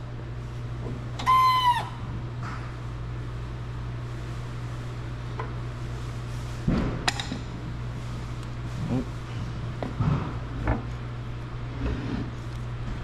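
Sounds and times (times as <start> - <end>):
hydraulic press humming: 0.8 - 2.7.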